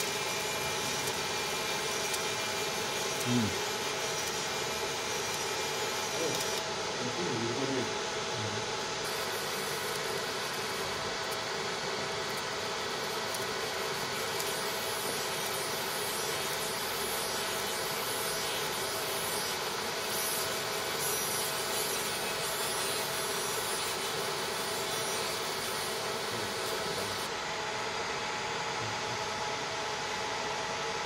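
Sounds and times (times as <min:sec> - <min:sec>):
laser cleaning hiss: 0:00.0 - 0:27.3.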